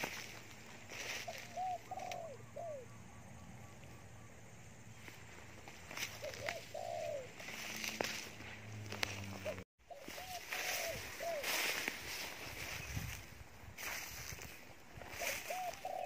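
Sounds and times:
dove cooing: 0:00.9 - 0:04.4, 0:05.9 - 0:11.7, 0:15.0 - 0:16.0.

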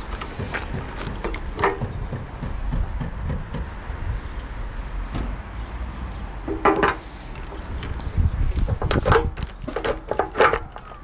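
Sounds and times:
small knocks and handling noises: 0:00.0 - 0:02.6, 0:06.5 - 0:08.0.

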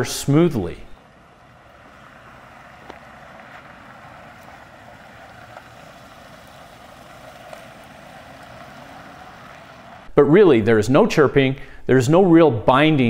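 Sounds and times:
vehicle driving slowly: 0:00.0 - 0:10.2
faint ticks: 0:02.7 - 0:03.6.

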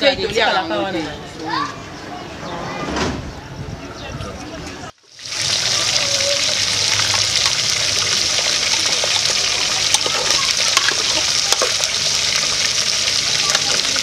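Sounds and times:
stew sizzling in pot: 0:05.0 - 0:14.0.

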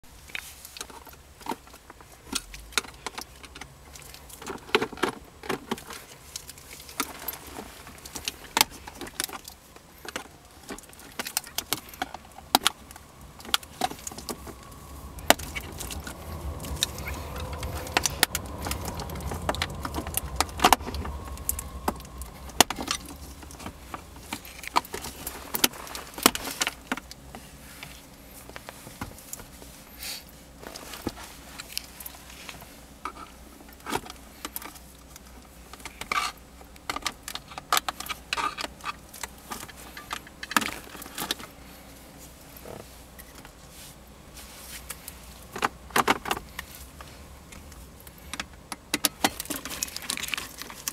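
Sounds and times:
low rumble: 0:10.6 - 0:26.3.

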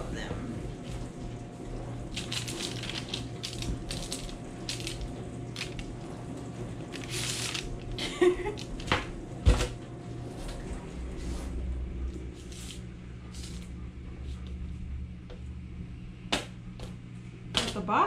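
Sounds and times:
steady low hum: 0:00.0 - 0:18.0
parchment paper rustling: 0:02.1 - 0:06.0, 0:06.8 - 0:09.7, 0:12.4 - 0:14.4.

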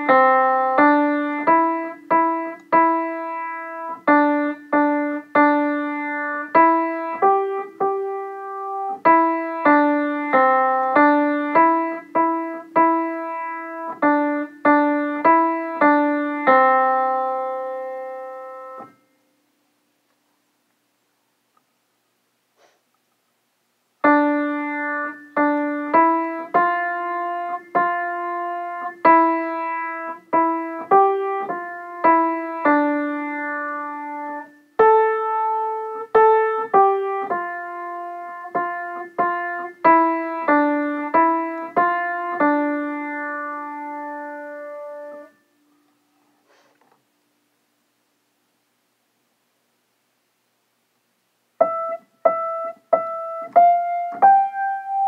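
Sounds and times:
slow piano melody: 0:00.0 - 0:19.6, 0:24.0 - 0:45.9, 0:51.6 - 0:55.0.

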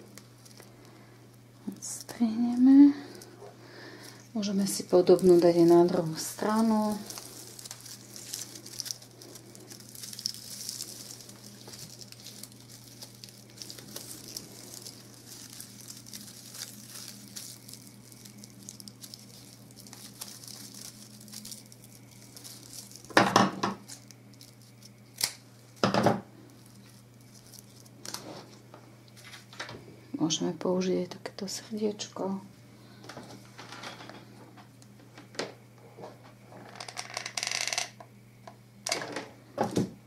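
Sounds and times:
ribbon rustling and crinkling: 0:00.0 - 0:29.5.

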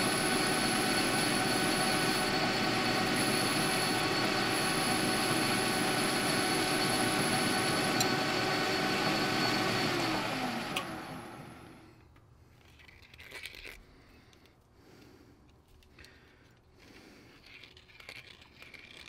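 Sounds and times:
metal lathe running: 0:00.0 - 0:11.8
lathe winding down whine: 0:00.0 - 0:12.0.

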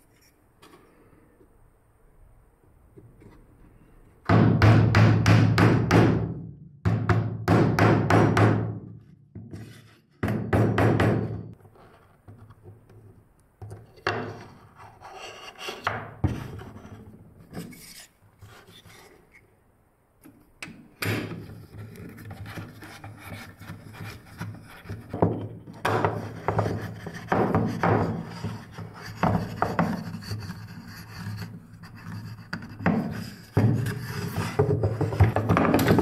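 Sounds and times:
plywood scraping on workbench: 0:21.7 - 0:36.0
wood-on-wood knocks: 0:32.8 - 0:36.0.

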